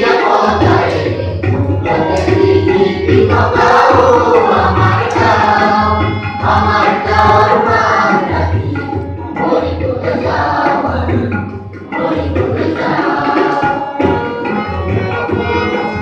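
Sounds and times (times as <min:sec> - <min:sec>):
group of voices singing: 0:00.0 - 0:16.0
hand drums beating: 0:00.0 - 0:16.0.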